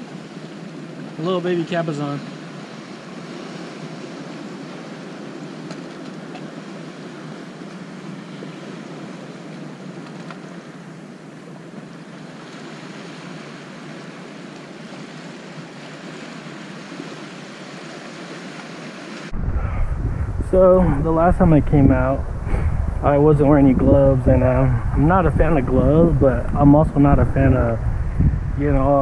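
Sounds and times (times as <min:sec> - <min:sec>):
ocean surf washing over rocks: 0:00.0 - 0:27.8
wind on microphone: 0:19.3 - 0:29.0.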